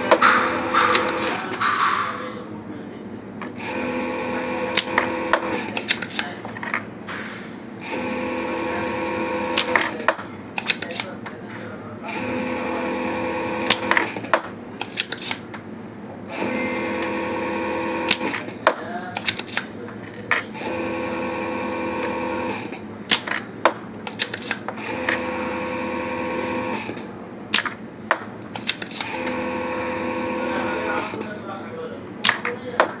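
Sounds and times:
sharp clicks and knocks: 0.0s - 2.2s
machine hum: 0.0s - 10.6s, 15.5s - 18.6s, 20.5s - 31.4s.

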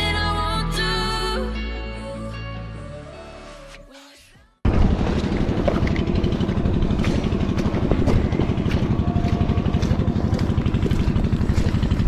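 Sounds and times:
wind buffeting microphone: 4.7s - 12.0s.

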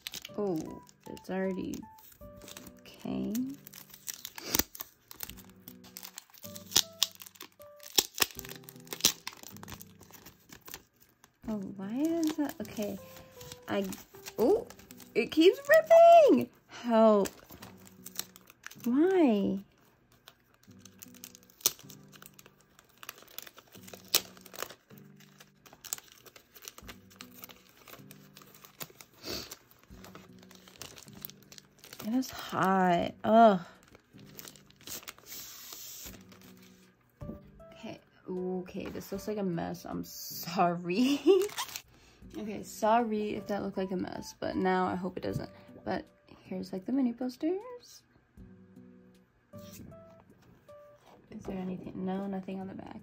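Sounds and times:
packaging crinkling and tearing: 0.0s - 32.7s, 33.3s - 36.9s, 41.0s - 41.9s
soft background music: 0.0s - 53.0s.

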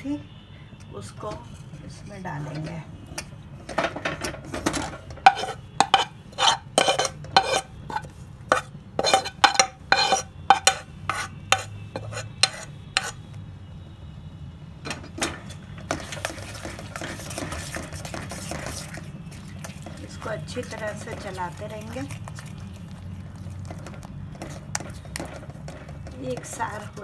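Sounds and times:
metal spoon tapping a pan: 3.2s - 13.2s, 23.8s - 27.0s
spoon scraping while stirring: 4.5s - 13.2s, 15.3s - 27.0s.

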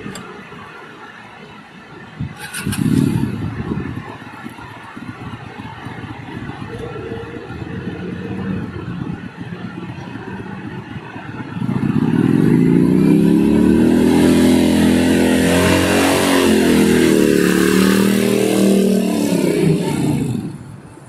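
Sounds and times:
motorcycle engine accelerating: 11.5s - 20.7s.

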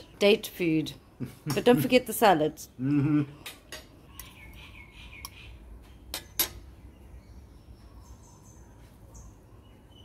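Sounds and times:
faint bird chirps: 4.0s - 10.0s.

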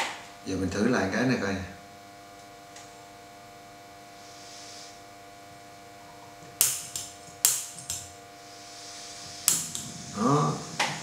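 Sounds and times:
piezo igniter clicking: 6.6s - 8.2s, 9.4s - 9.9s.

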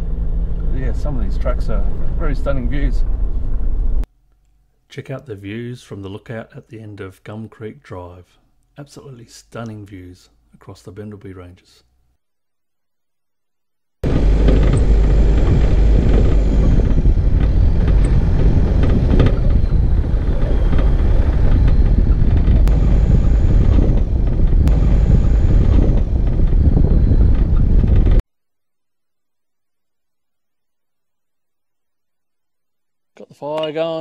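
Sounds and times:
vehicle engine: 0.0s - 4.0s, 14.0s - 28.2s
wind: 14.0s - 28.2s.

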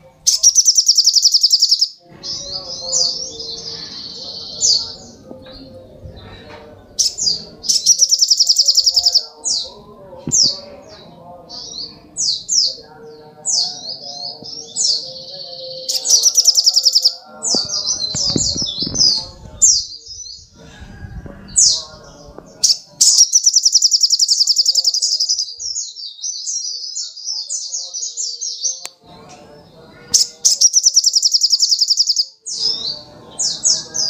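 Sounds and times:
bird singing sweeping notes: 0.0s - 20.6s, 21.5s - 28.8s, 29.6s - 34.0s
bird trilling: 0.3s - 5.2s, 7.0s - 9.7s, 13.6s - 20.5s, 22.6s - 25.9s, 30.1s - 34.0s.

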